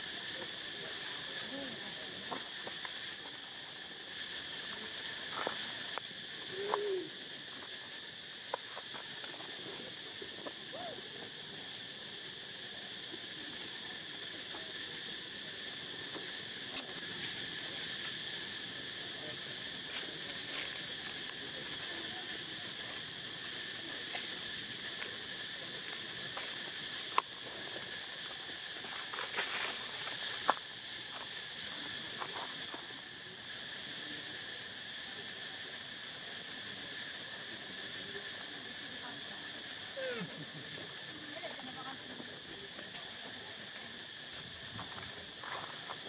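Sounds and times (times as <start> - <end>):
insect chorus buzzing: 0.0 - 46.0
dry leaves rustling: 19.8 - 30.4.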